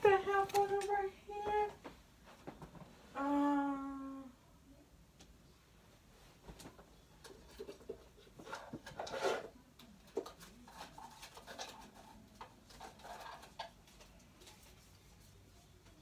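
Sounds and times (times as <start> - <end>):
rummaging through objects on shelf: 5.8 - 16.0.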